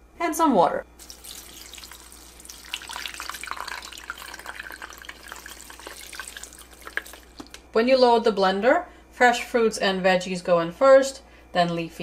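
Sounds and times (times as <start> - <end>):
water pouring into blender: 1.0 - 7.5.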